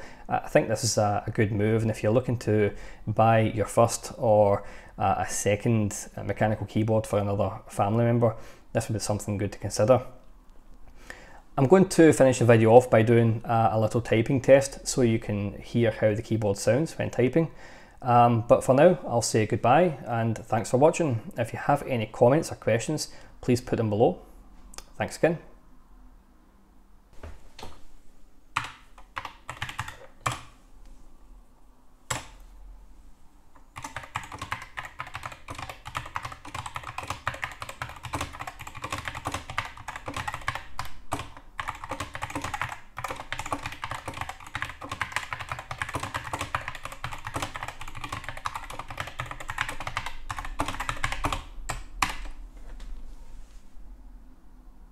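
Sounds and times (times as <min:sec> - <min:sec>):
mechanical keyboard typing: 0:28.6 - 0:30.5, 0:33.8 - 0:52.4.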